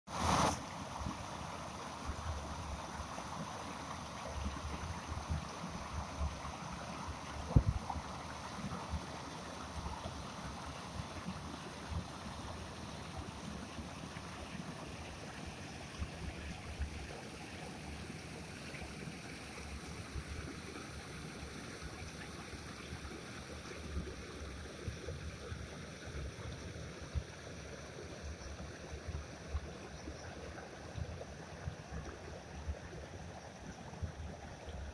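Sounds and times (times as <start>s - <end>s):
stream rushing over stones: 0.1s - 34.9s.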